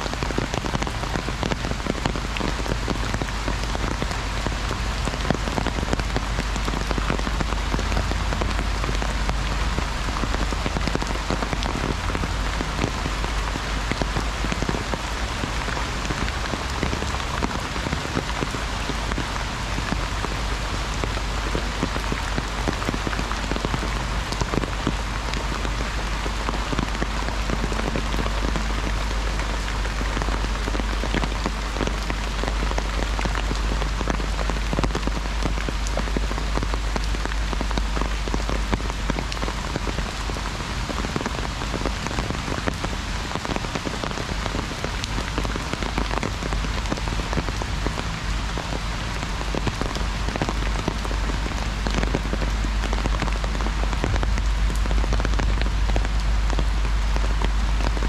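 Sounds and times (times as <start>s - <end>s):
heavy rain on an umbrella: 0.0s - 58.0s
low rumble: 44.3s - 58.0s.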